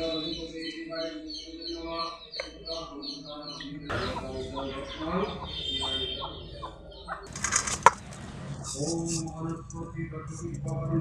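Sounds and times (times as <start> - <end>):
chickens clucking: 0.0 - 10.8
rustling flurry: 7.3 - 9.4.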